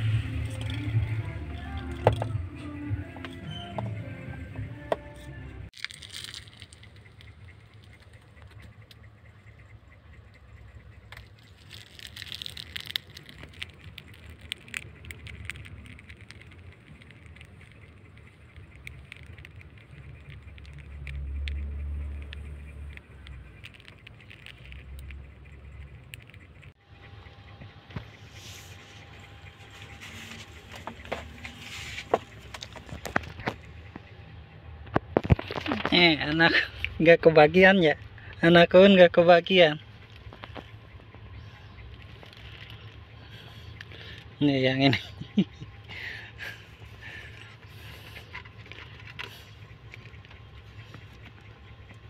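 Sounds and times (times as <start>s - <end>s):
faint low hum: 0.0s - 52.0s
kittens suckling clicks and smacks: 5.7s - 26.8s, 39.8s - 44.4s, 45.1s - 52.0s.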